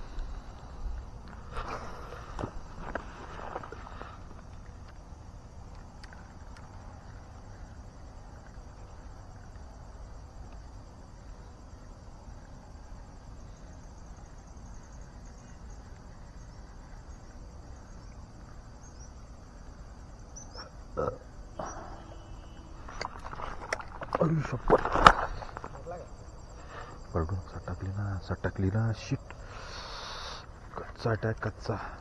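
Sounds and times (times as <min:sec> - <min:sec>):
low steady rumble: 0:00.0 - 0:24.7
insects chirping: 0:00.0 - 0:32.0.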